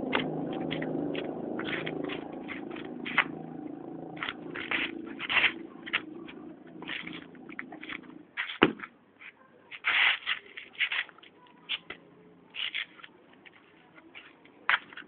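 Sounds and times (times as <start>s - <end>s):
low steady hum: 0.0s - 8.4s
shoes scuffing on concrete: 4.2s - 12.0s.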